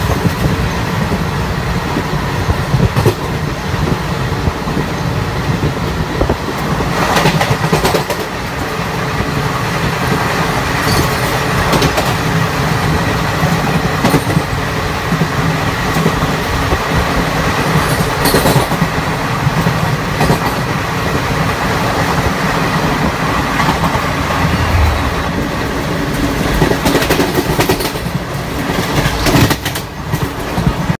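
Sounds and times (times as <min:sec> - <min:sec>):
passing train coaches rushing: 0:00.0 - 0:31.0
train rumbling at speed: 0:00.0 - 0:31.0
wheels clattering over rail joints: 0:09.9 - 0:24.6.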